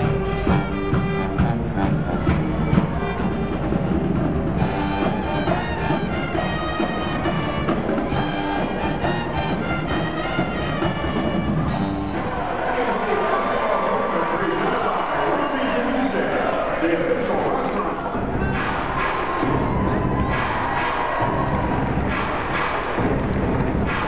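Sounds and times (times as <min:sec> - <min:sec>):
marching drum line: 0:00.0 - 0:12.7, 0:18.2 - 0:24.0
brass band playing: 0:00.0 - 0:12.8.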